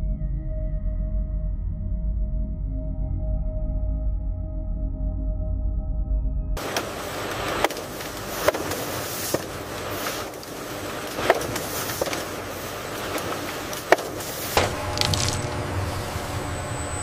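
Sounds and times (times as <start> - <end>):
machinery hiss: 6.6 - 17.0.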